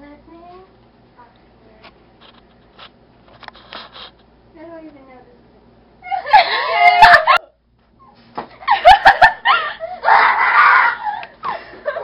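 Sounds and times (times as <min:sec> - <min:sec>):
children shrieking and laughing: 0:06.0 - 0:07.5, 0:08.7 - 0:12.0.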